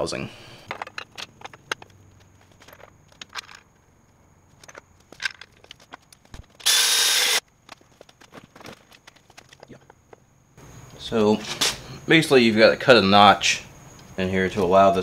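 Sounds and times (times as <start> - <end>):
metal parts clicking and knocking: 0.6 - 3.9, 4.5 - 6.8.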